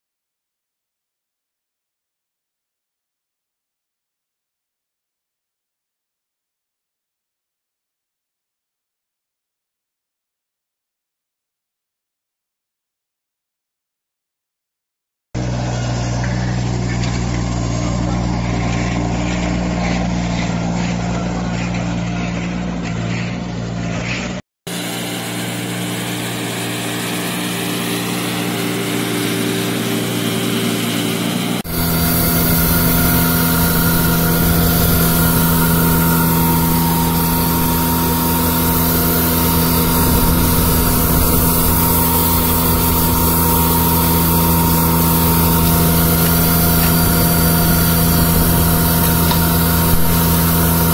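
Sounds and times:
street sweeper diesel engine running: 0:15.4 - 0:50.9
steady hum: 0:24.7 - 0:50.9.

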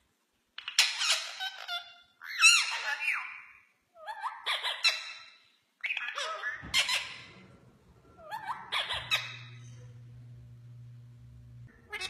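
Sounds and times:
parakeets chattering: 0:05.8 - 0:12.0.

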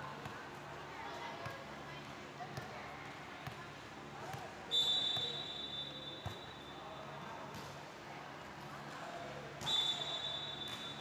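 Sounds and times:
referee's whistle blast: 0:04.7 - 0:06.2, 0:09.6 - 0:11.0.

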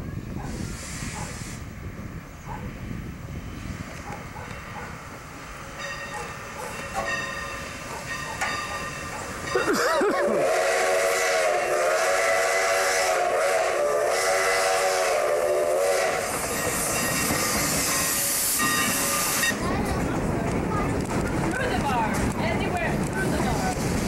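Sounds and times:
train noise: 0:00.0 - 0:24.0
steam whistle blast: 0:10.2 - 0:19.6.

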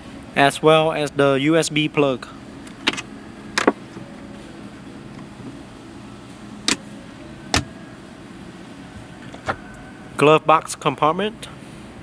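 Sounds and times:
low cabin hum: 0:01.9 - 0:10.3.

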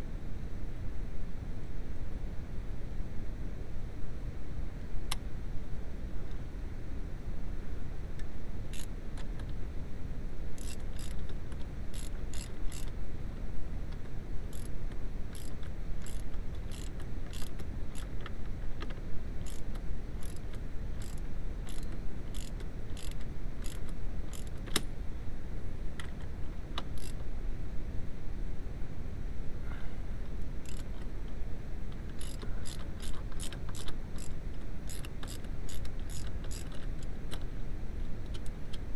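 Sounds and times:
ratchet wrench clicking: 0:10.6 - 0:12.9, 0:14.5 - 0:14.7, 0:15.3 - 0:18.1, 0:19.4 - 0:24.6, 0:26.8 - 0:27.2, 0:30.6 - 0:30.9, 0:32.1 - 0:37.4.

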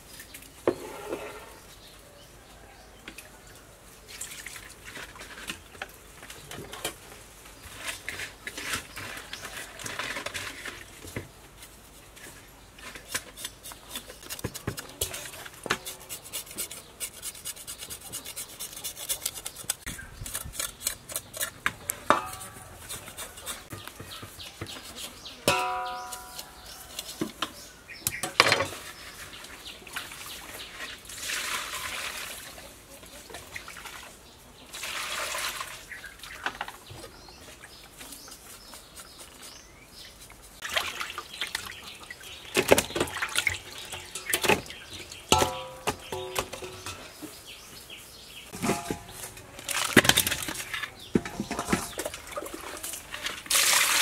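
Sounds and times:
fish scrubbed with salt: 0:12.8 - 0:21.6, 0:22.3 - 0:25.3
metal bowl clanking: 0:21.8 - 0:23.6, 0:25.4 - 0:26.7, 0:42.5 - 0:47.4, 0:48.5 - 0:54.0.

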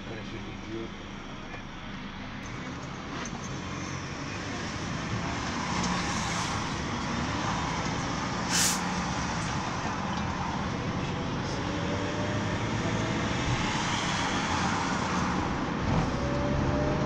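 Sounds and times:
vehicle engine and road noise: 0:00.0 - 0:17.0
short sharp hiss: 0:08.5 - 0:08.9.

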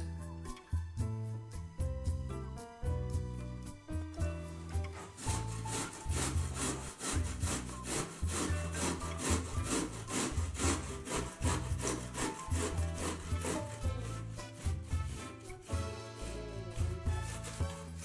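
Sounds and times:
vegetable grated on box grater: 0:04.9 - 0:18.0.

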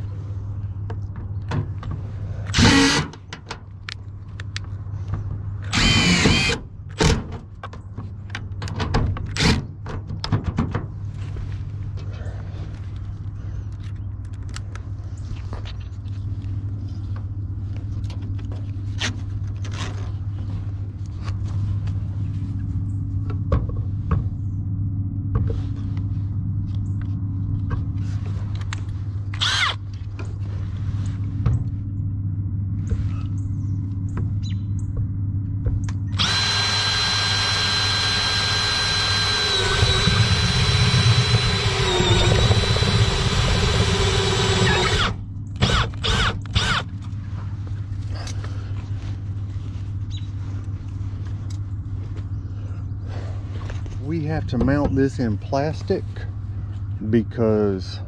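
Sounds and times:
steady low hum: 0:00.0 - 0:58.0
cordless drill whining: 0:02.5 - 0:03.2, 0:05.7 - 0:06.6, 0:29.4 - 0:29.8, 0:36.1 - 0:46.9.

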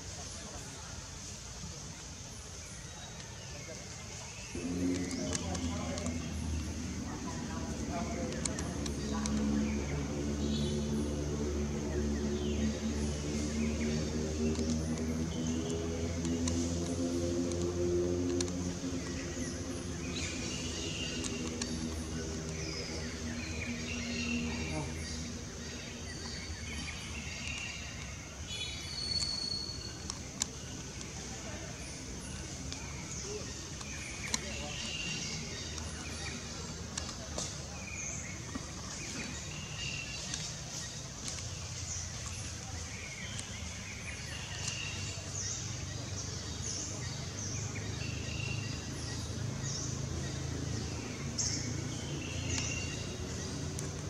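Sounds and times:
small birds chirping: 0:00.0 - 0:54.0
low rumble: 0:04.4 - 0:28.9.

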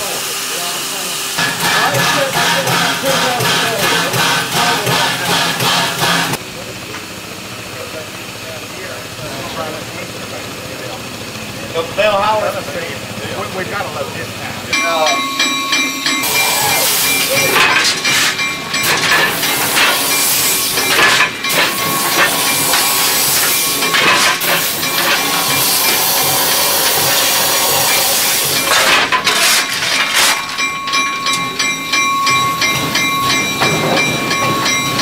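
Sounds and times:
steam hissing: 0:00.0 - 0:06.4, 0:15.1 - 0:29.0
thin steady tones: 0:13.4 - 0:28.7, 0:30.5 - 0:35.0
shovel scraping metal: 0:17.1 - 0:31.0.

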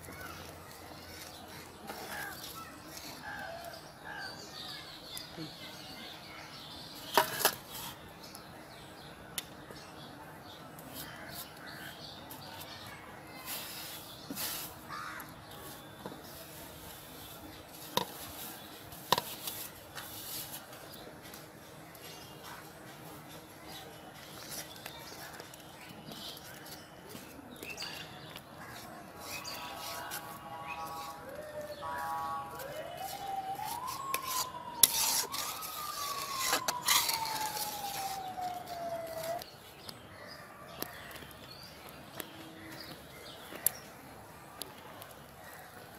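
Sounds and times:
metal spatula scraping metal pot: 0:34.1 - 0:37.7.

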